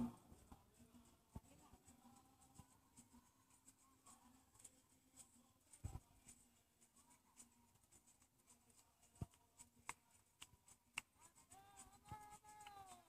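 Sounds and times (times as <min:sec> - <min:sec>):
faint clicks and taps: 0:00.0 - 0:13.0.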